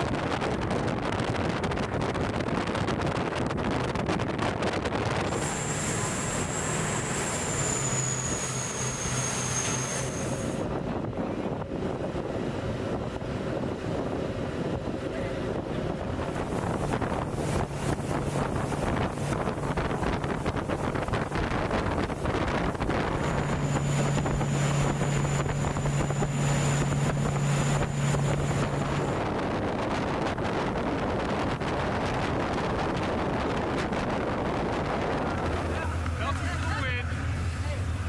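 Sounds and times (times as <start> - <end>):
boat engine drone: 0.0 - 38.0
wind buffeting microphone: 0.0 - 38.0
water rushing: 5.0 - 11.0, 15.0 - 38.0.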